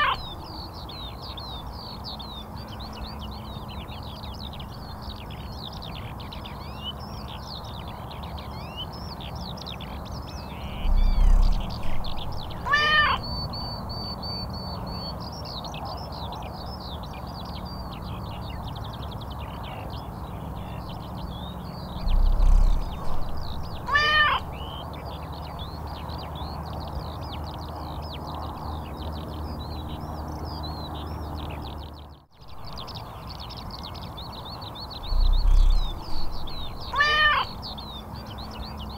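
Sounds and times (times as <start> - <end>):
cat meowing: 0.0 - 0.2, 12.6 - 13.2, 23.8 - 24.5, 36.9 - 37.5
small birds chirping: 0.0 - 38.9
low hum: 10.3 - 14.0, 20.2 - 26.0, 34.2 - 38.7
loud low rumble: 10.6 - 12.7, 21.8 - 24.6, 34.9 - 37.0.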